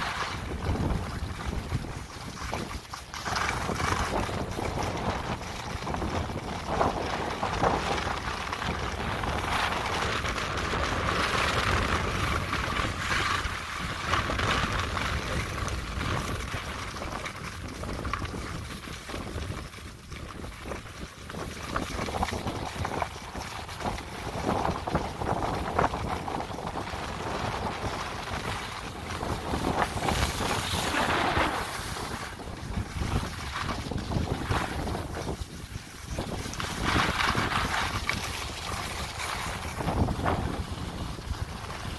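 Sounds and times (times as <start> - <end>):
skis scraping over snow: 0.0 - 41.9
wind on microphone: 0.0 - 41.9.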